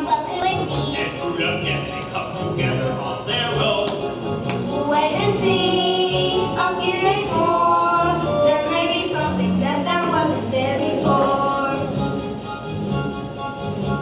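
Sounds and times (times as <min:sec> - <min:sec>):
children singing together: 0:04.8 - 0:12.0.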